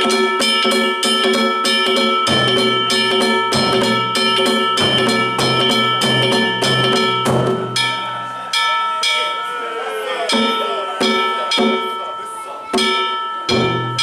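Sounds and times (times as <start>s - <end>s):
big taiko drum: 0.0s - 8.3s, 12.8s - 14.0s
small metal gongs ringing: 0.0s - 14.0s.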